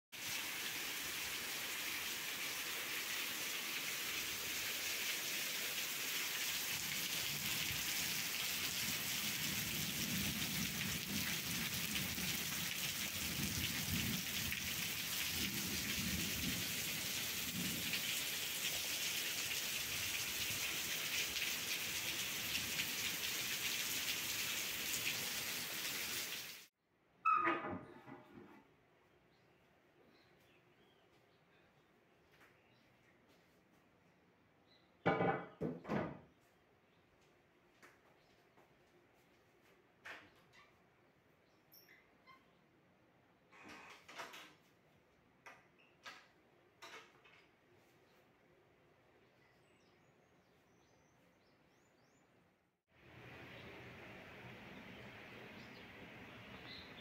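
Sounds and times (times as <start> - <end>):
heavy rain pouring: 0.2 - 26.7
thunder rumbling: 9.4 - 18.0.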